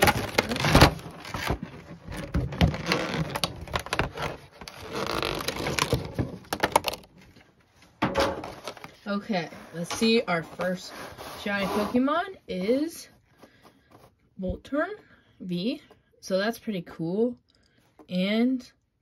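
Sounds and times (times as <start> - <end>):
plastic shrink wrap crinkling: 0.0 - 7.5
handling scrapes: 8.5 - 12.3.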